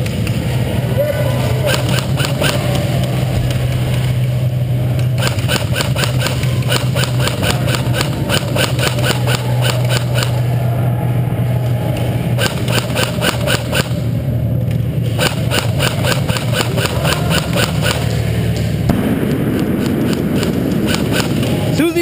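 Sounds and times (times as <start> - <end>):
low mechanical hum: 0.0 - 22.0
sharp evenly spaced ticking: 1.6 - 2.8, 5.0 - 10.5, 12.2 - 14.0, 15.1 - 21.4.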